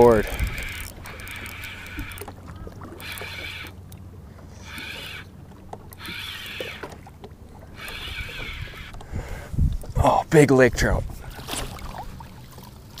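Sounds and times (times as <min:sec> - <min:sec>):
fishing reel cranking: 0:00.0 - 0:09.1.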